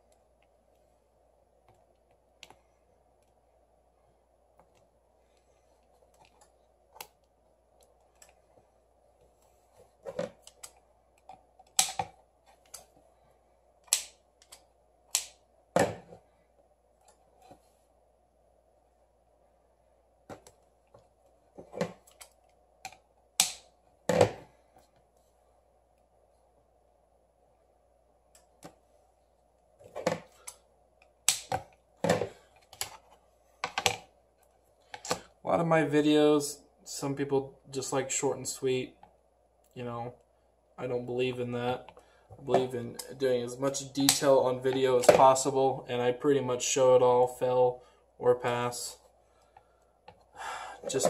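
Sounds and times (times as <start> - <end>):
tape snaps: 13.9 - 15.4, 23.4 - 23.7, 31.3 - 31.6.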